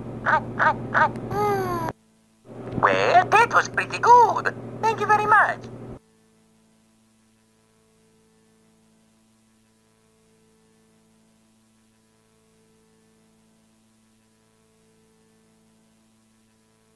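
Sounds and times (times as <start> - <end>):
faint steady hum: 0.0 - 16.9
light hiss: 5.7 - 16.9.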